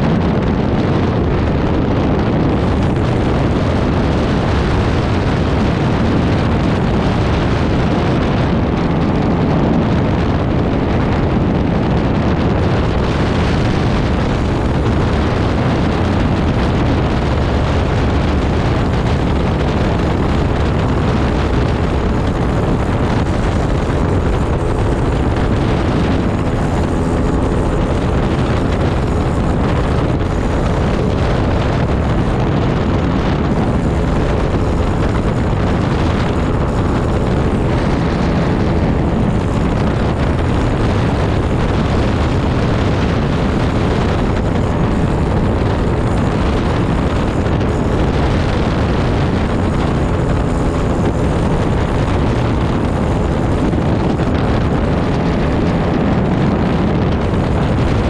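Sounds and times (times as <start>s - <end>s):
aircraft engine drone: 0.0s - 58.0s
wind rushing over microphone: 0.0s - 58.0s.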